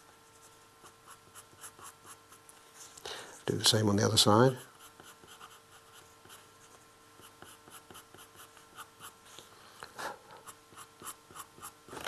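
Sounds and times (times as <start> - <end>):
pencil scratching on paper: 0.4 - 2.4, 4.6 - 9.2, 10.4 - 11.8.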